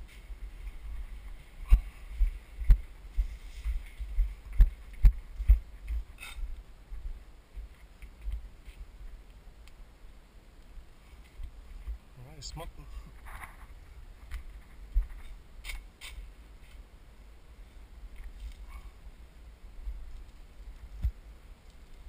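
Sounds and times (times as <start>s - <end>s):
footsteps walking: 0.0s - 9.1s.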